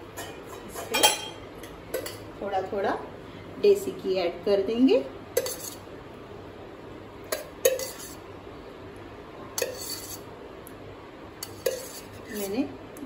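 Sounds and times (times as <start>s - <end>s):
spoon clinking on metal pot: 0.2s - 1.4s, 7.3s - 8.2s.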